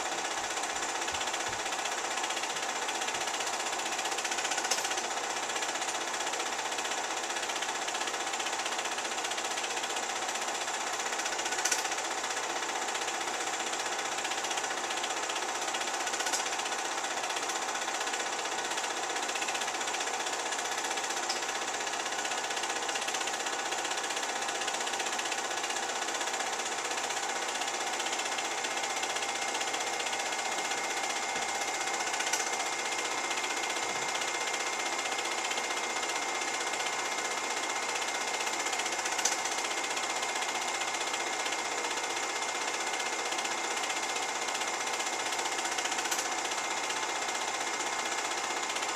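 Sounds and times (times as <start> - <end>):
film projector whirring: 0.0 - 48.9
sharp clicks: 31.5 - 32.7, 38.0 - 39.6.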